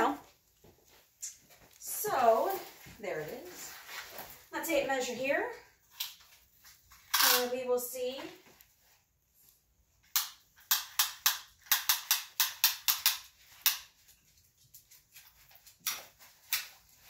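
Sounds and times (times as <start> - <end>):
tape measure clicks: 7.1 - 7.6, 10.1 - 13.9.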